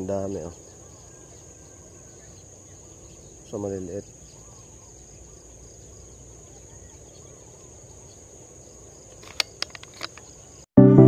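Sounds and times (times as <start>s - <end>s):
high-pitched insect trill: 0.0s - 10.7s
faint outdoor ambience: 0.0s - 11.0s
sharp clicks: 9.1s - 10.3s.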